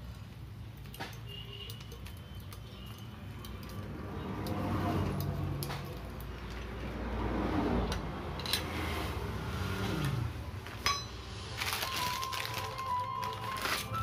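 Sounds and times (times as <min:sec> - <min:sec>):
metal spanner clinking on nut: 0:08.4 - 0:08.7.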